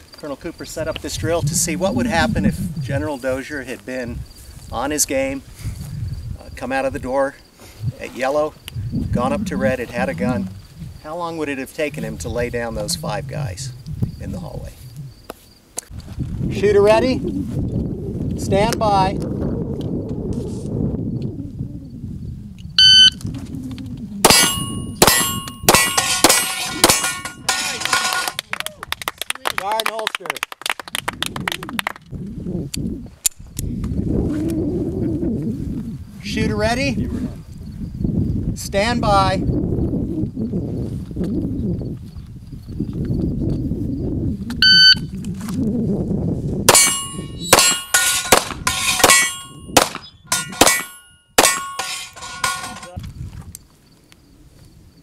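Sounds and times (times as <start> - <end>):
shot timer beep: 22.8 - 23.2, 44.6 - 45.1
pistol shots: 24.2 - 27.7, 46.7 - 51.8
steel targets clanging: 24.3 - 28.4, 46.7 - 53.0.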